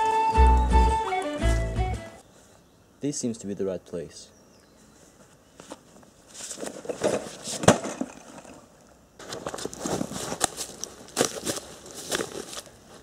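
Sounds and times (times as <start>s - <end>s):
footsteps crunching through dry leaves: 9.2s - 13.0s.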